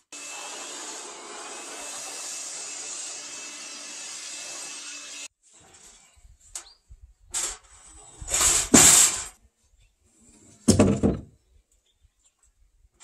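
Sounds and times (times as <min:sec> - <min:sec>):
timber scraping: 0:05.5 - 0:09.4.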